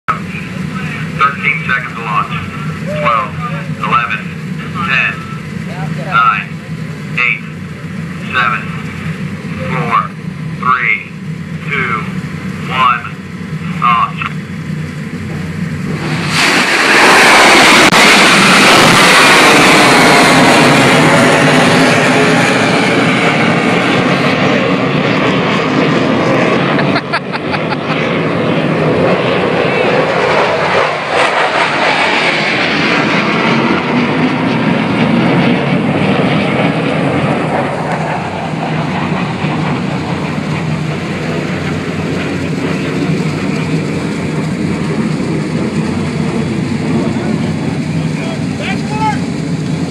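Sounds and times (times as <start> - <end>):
rocket booster roaring: 11.6 - 49.9
missile launch blast: 15.9 - 23.0.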